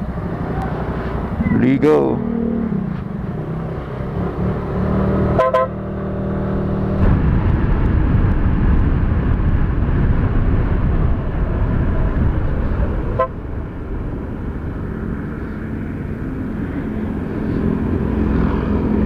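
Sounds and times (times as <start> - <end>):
motorcycle horn toot: 5.4 - 5.8, 13.2 - 13.4
wind noise on microphone: 6.0 - 19.0.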